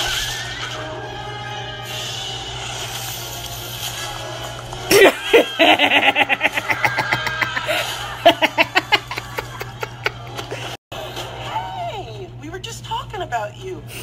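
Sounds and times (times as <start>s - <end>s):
person laughing hard: 4.9s - 10.8s.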